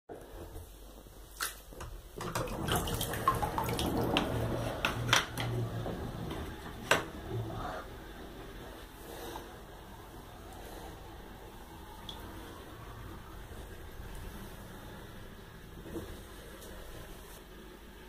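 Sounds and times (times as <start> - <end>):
water gurgling down a drain: 2.2 - 8.6
low hum: 3.0 - 18.0.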